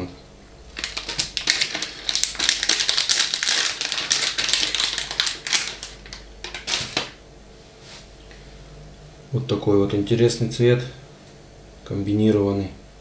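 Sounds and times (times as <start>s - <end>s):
plastic packets crinkling: 0.7s - 7.2s.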